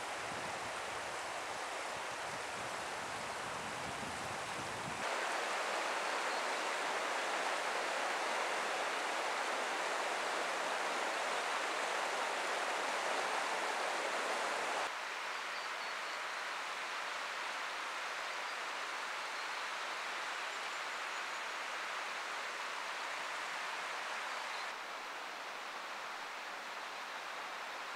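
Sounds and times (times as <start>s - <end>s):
river rushing: 0.0s - 15.2s.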